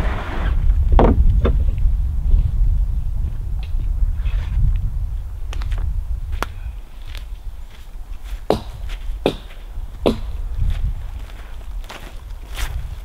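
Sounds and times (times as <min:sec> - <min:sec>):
steady low rumble: 0:00.0 - 0:13.0
sharp footsteps: 0:05.5 - 0:13.0.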